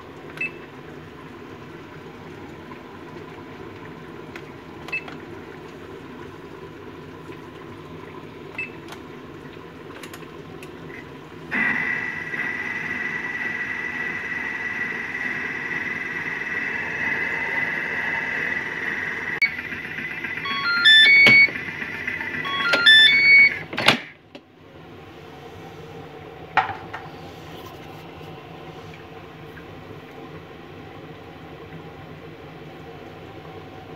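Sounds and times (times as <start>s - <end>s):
electronic beeps at stepping pitches: 16.7s - 21.6s
button beep: 20.4s - 21.5s, 22.5s - 23.5s.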